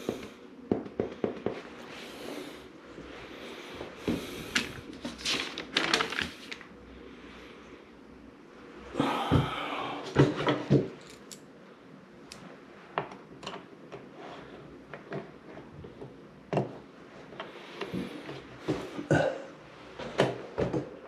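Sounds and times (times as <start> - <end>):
handling rustling: 4.5 - 6.6.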